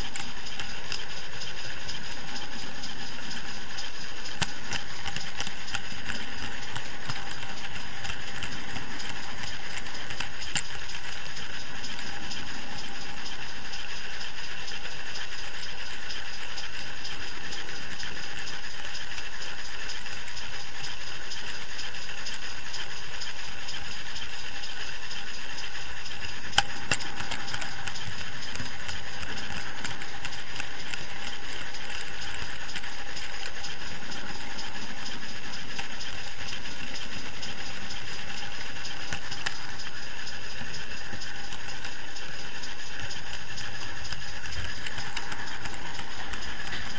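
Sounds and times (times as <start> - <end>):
sharp click: 0.0 - 14.3, 26.1 - 46.9
model train rolling along track: 0.0 - 46.9.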